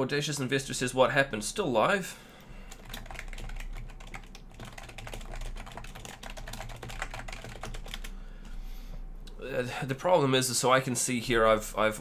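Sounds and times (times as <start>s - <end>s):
low steady hum: 0.0s - 12.0s
keyboard typing: 2.7s - 8.2s.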